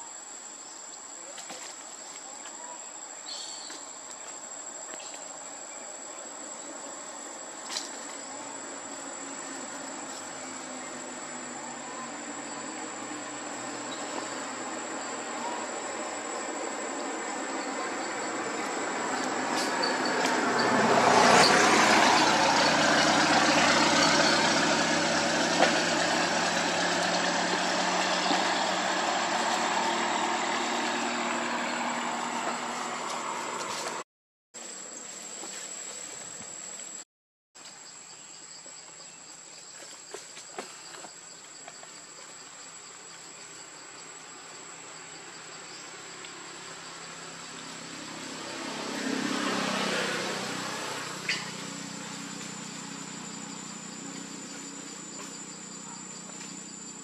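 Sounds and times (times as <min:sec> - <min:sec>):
insect chorus with high whine: 0:00.0 - 0:34.0, 0:37.6 - 0:57.0
vehicle engine: 0:06.2 - 0:34.0, 0:44.2 - 0:57.0.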